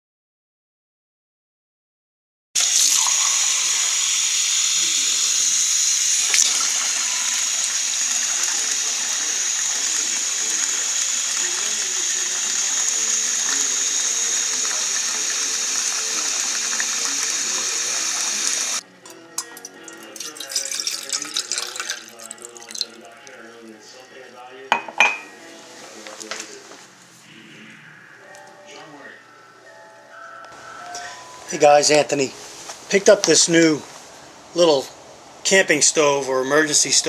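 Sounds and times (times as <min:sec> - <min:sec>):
tap water running into glass cup: 0:02.6 - 0:23.4.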